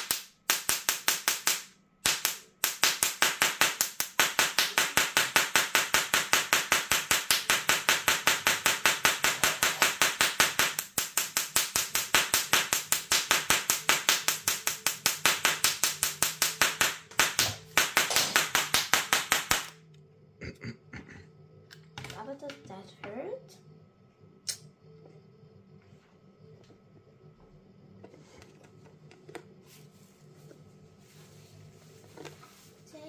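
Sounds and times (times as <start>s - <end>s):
electric sparks snapping: 0.0s - 19.9s.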